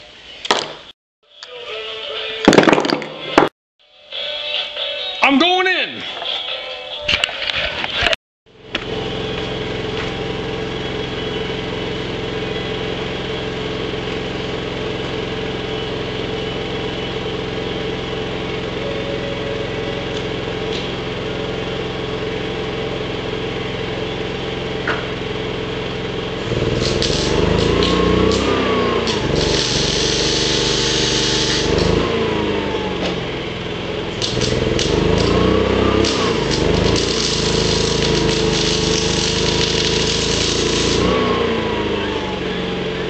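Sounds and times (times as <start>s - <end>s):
loud machine noise: 8.5s - 43.0s
small engine running steadily: 8.5s - 43.0s.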